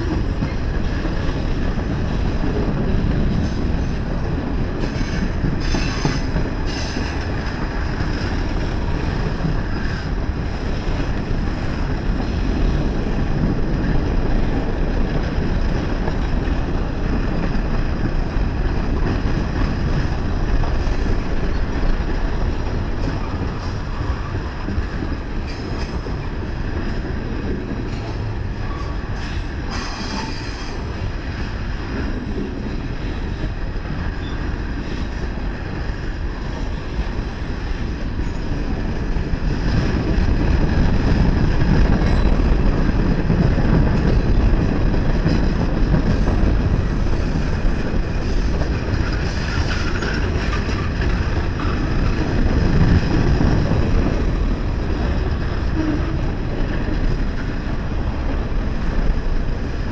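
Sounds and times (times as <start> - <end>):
train wheels rumbling on rails: 0.0 - 59.9.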